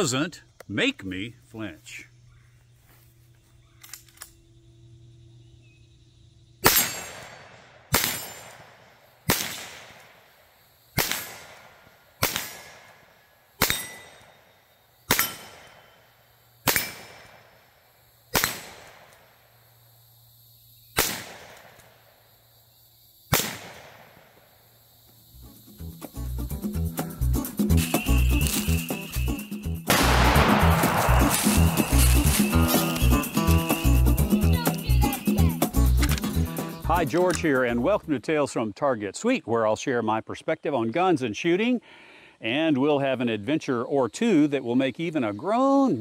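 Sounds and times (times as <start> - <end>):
rifle shots with echo: 6.6 - 10.1, 11.0 - 13.0, 18.3 - 19.2, 23.3 - 24.2, 29.9 - 32.5.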